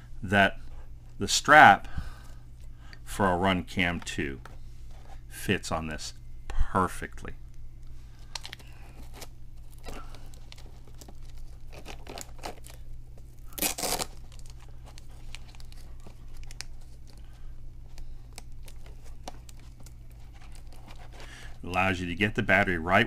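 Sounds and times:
strap handling rustles: 8.1s - 21.9s.

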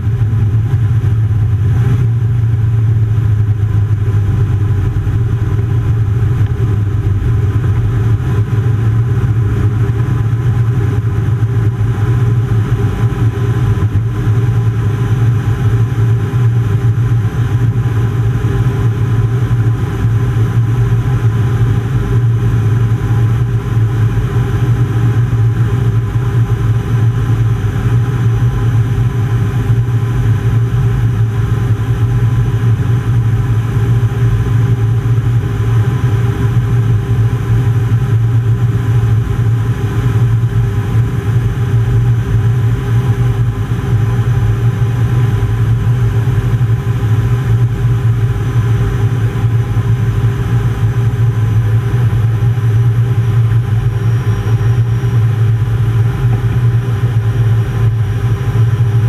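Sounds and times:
rushing air: 0.0s - 12.8s
jet engine in cockpit: 0.0s - 59.0s
strong low hum: 0.0s - 59.0s.

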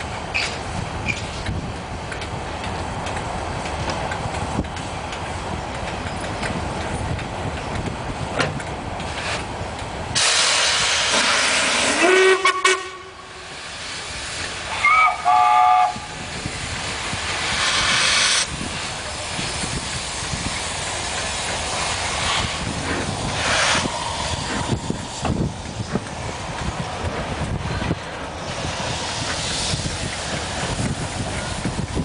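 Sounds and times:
steam locomotive hissing: 0.0s - 32.0s
steam whistle rising in pitch: 11.8s - 13.2s, 14.7s - 16.1s.

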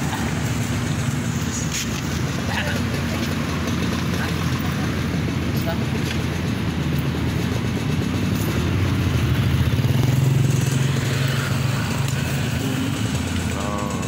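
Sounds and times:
motorcycle passing by: 0.0s - 14.0s.

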